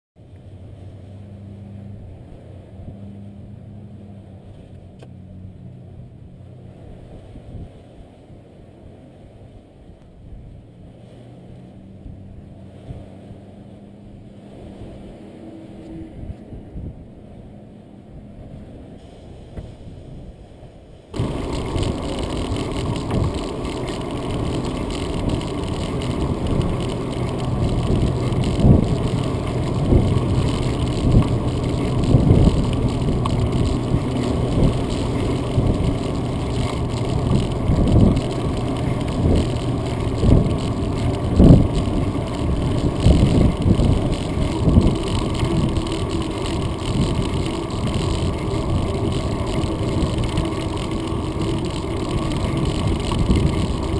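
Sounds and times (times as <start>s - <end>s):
wind rush: 10.3s - 53.9s
bicycle rumble on concrete: 21.1s - 53.9s.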